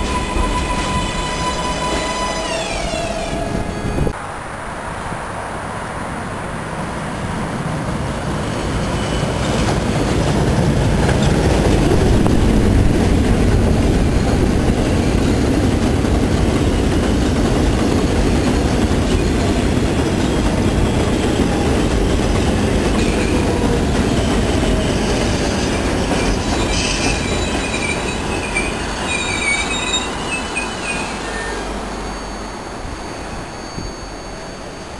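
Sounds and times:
high wavering wheel squeal: 0:00.0 - 0:04.2, 0:18.1 - 0:34.9
train rumble and wheel clatter: 0:00.0 - 0:34.9.

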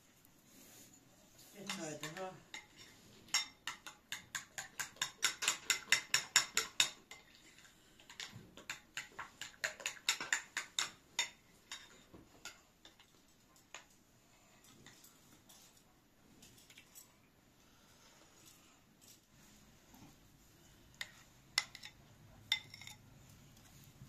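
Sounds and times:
spoon clinking against ceramic bowl: 0:03.3 - 0:07.0, 0:21.6 - 0:23.0.

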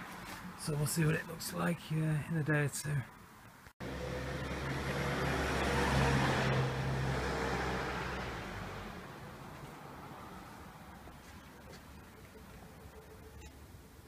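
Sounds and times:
vehicle engine hum: 0:03.8 - 0:13.5.

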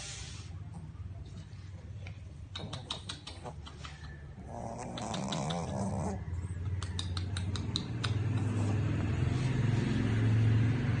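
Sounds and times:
low motor hum: 0:04.0 - 0:11.0.

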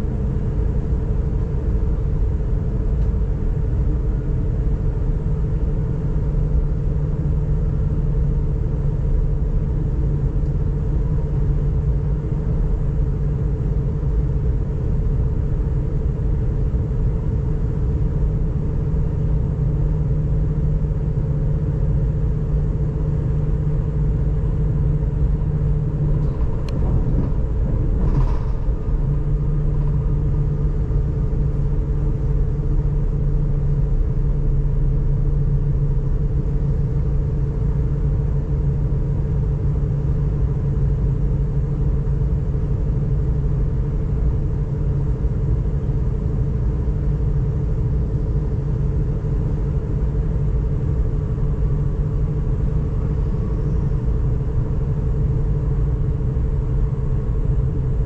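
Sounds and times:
electric drive hum: 0:08.2 - 0:40.9
train wheels rumbling on rails: 0:24.4 - 0:34.3.

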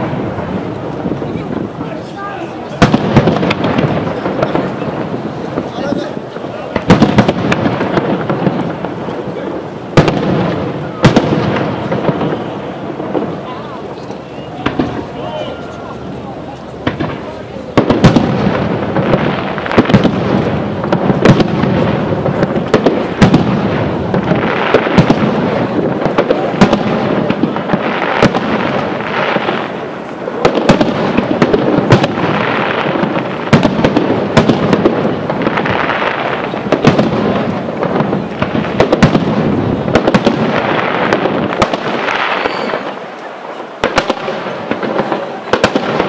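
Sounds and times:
firework crackling: 0:00.0 - 0:46.0
firework shells bursting: 0:02.6 - 0:46.0.

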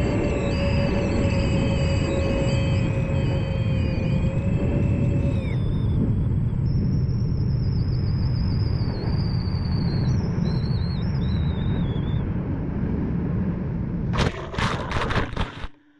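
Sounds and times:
drone motors whining: 0:00.0 - 0:12.2
wind rumble: 0:00.0 - 0:15.7.

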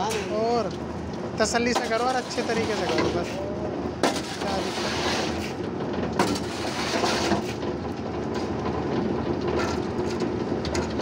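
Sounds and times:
concrete mixer rumbling: 0:00.0 - 0:11.0
wet concrete sliding off chute: 0:01.5 - 0:05.6, 0:06.2 - 0:07.8.

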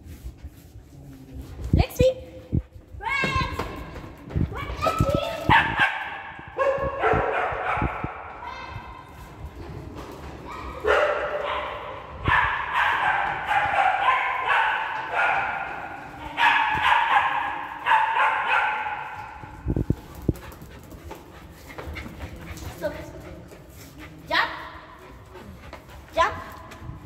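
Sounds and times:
dogs barking and yipping: 0:05.0 - 0:08.3, 0:10.4 - 0:22.7.

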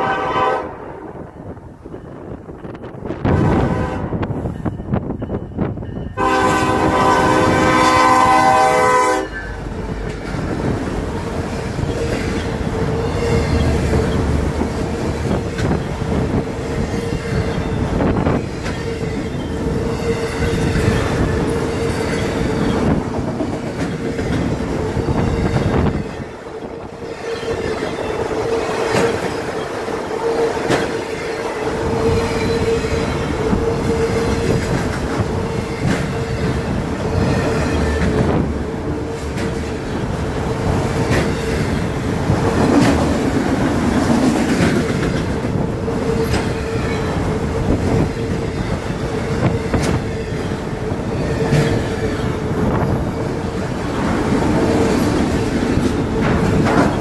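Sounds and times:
locomotive air horn chord: 0:00.0 - 0:00.9, 0:03.3 - 0:04.3, 0:06.2 - 0:09.4
steady train whine: 0:00.0 - 0:57.0
train wheels clickety-clack: 0:09.4 - 0:57.0.

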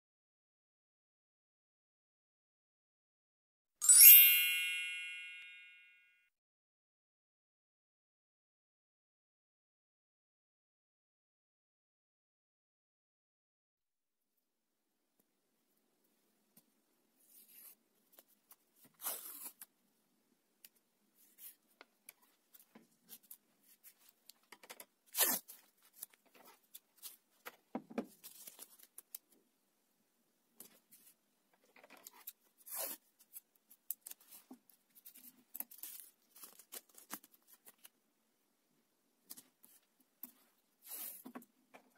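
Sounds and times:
masking tape ripping: 0:25.1 - 0:25.6.

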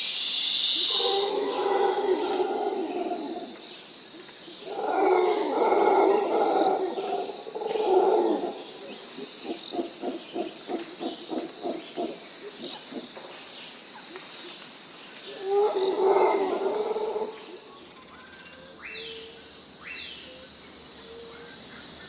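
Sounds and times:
gibbons hooting calls: 0:04.6 - 0:13.2.

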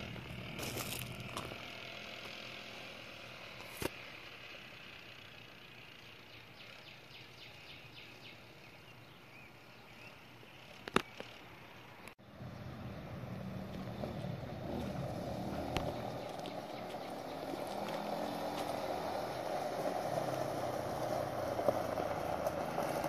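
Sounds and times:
distant go-kart engine: 0:00.0 - 0:09.2, 0:10.6 - 0:23.0
faint bird chirps: 0:05.2 - 0:12.0.

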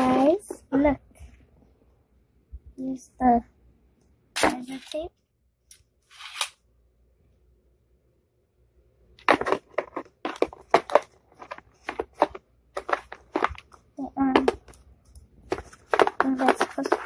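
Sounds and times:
plastic scraping: 0:09.2 - 0:17.0.

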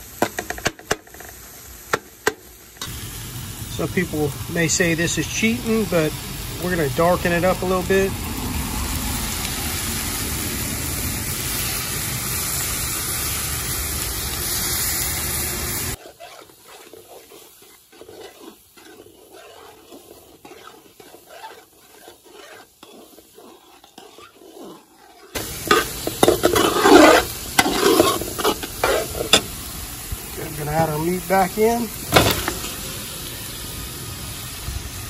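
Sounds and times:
vegetables sizzling in a pot: 0:00.0 - 0:35.0
metal spoon scraping a pot: 0:15.9 - 0:29.7.

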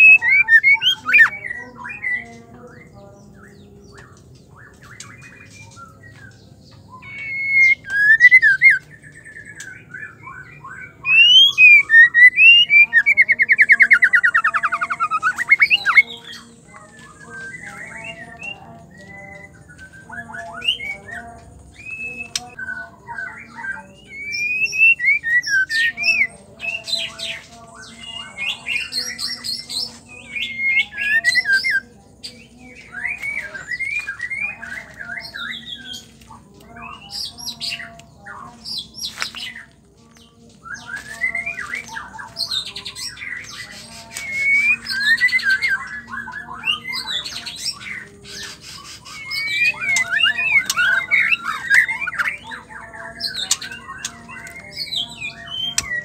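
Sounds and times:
bird singing whistled phrases: 0:00.0 - 0:02.3, 0:04.6 - 0:18.6, 0:19.3 - 0:26.3, 0:40.6 - 0:56.0.

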